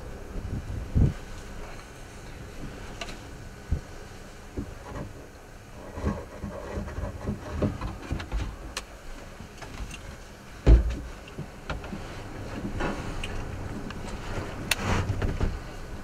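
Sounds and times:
wind rumble on microphone: 0.0 - 16.0
heavy low thump: 10.6 - 11.1.

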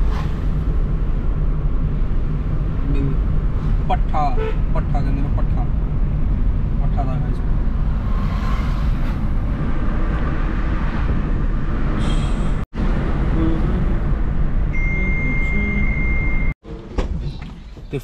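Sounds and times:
wind rushing through car window: 0.0 - 14.7
road rumble: 0.0 - 18.0.

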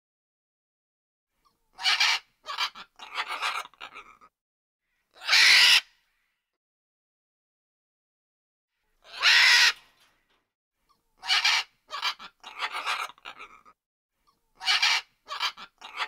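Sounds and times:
macaw squawking: 1.8 - 4.1, 5.2 - 5.9, 9.1 - 9.8, 11.2 - 13.6, 14.6 - 16.0.

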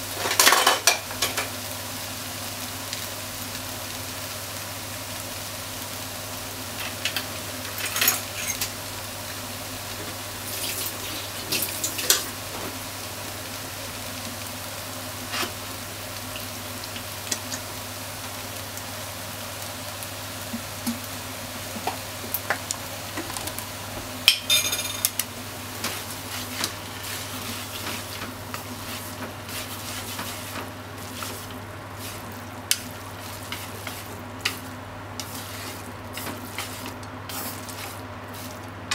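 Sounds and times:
food sizzling in frying pan: 0.0 - 38.9
utensils tapping pan: 25.8 - 38.9.

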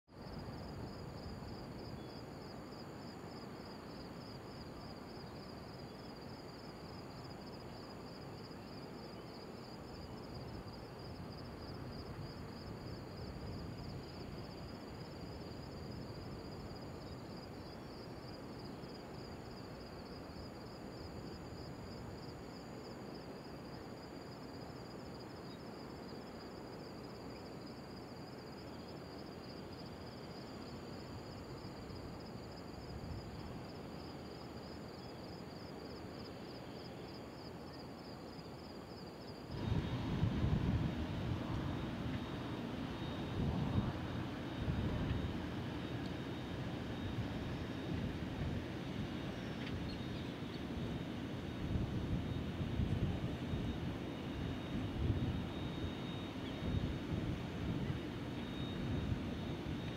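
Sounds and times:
high insect whine: 0.1 - 59.9
insects trilling: 0.2 - 59.9
low background rumble: 39.5 - 55.5.

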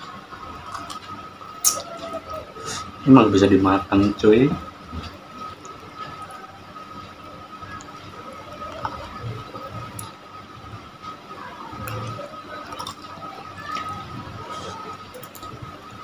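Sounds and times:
faint steady high tone: 0.0 - 16.0
chewing: 0.6 - 2.4, 7.7 - 10.2, 11.7 - 15.8.

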